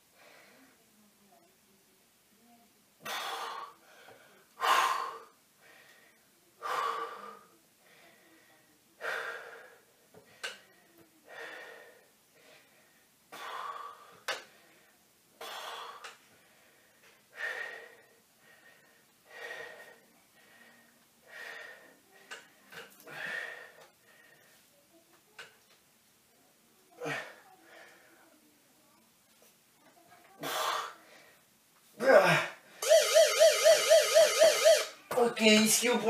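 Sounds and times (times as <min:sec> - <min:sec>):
man breathing hard: 0:11.3 - 0:14.4, 0:15.4 - 0:22.0.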